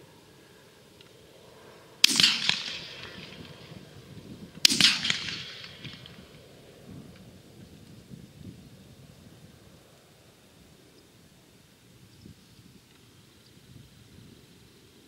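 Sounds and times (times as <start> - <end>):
shotgun shots with echo: 2.0 - 6.5.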